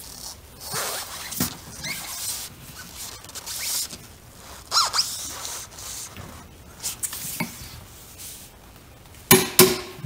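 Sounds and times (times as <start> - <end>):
bolt squeaking and rasping: 0.6 - 5.6.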